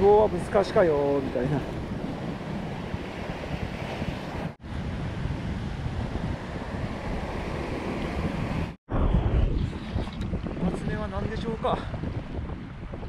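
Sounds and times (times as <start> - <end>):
surf washing over rocks: 0.0 - 5.1
wind buffeting microphone: 0.0 - 13.0.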